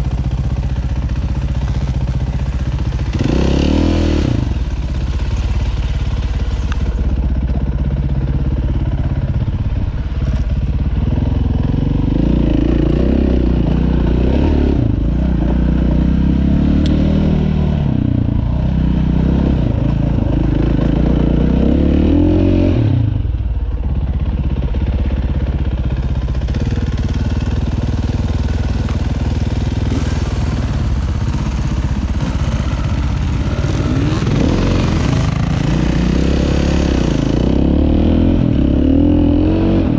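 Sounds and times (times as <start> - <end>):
dirt bike engine revving: 2.8 - 7.0, 11.0 - 23.2, 26.5 - 39.9.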